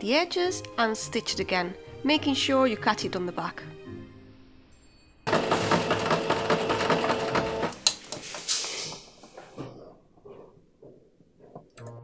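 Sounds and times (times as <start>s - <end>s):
sewing machine stitching: 5.3s - 8.7s.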